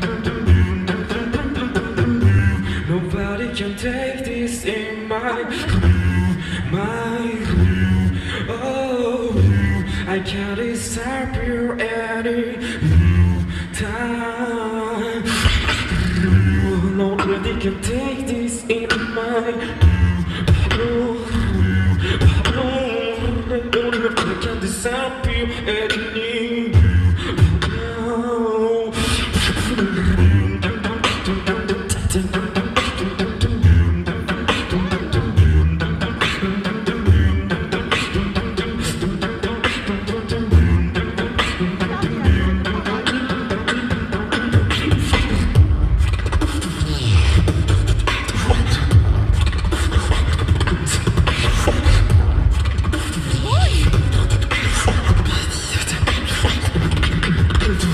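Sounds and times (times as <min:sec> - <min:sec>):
beatboxing into a microphone: 0:00.0 - 0:57.9.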